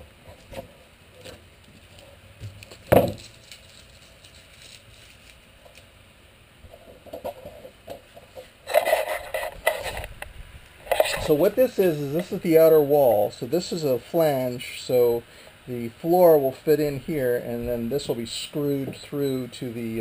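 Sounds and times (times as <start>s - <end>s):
camera handling rubbing and clatter: 6.7s - 10.3s, 10.9s - 11.3s.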